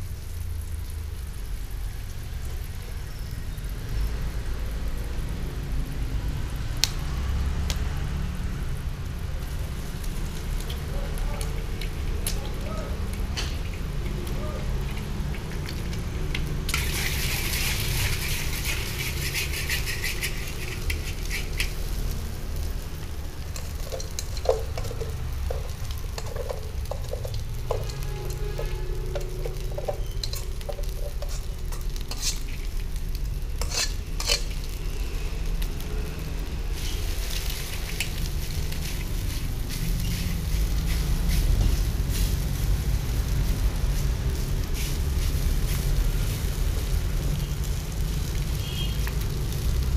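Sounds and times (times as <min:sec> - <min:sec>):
egg sizzling in a wok: 0:00.0 - 0:49.9
spatula scraping a pan: 0:13.2 - 0:22.2, 0:23.3 - 0:34.8, 0:36.8 - 0:42.4.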